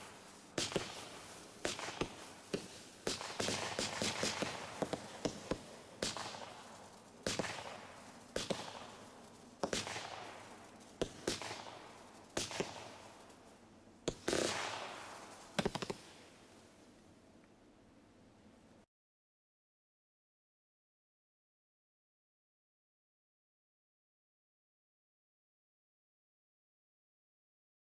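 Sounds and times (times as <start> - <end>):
firework shots popping: 0.0 - 16.4
firework hissing crackling tail: 0.0 - 16.8.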